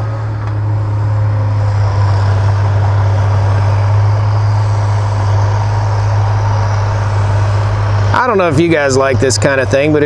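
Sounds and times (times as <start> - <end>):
diesel engine drone: 0.0 - 10.0
faint high whine: 0.0 - 10.0.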